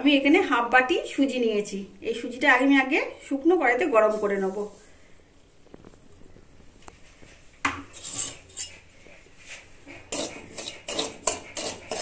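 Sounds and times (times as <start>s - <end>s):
spatula scraping semolina in metal pan: 7.8s - 12.0s.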